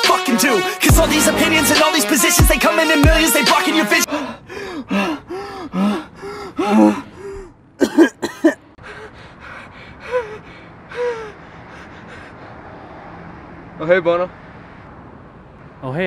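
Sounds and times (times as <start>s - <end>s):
man gasping and grunting: 4.1s - 8.0s
man groaning: 4.9s - 8.4s.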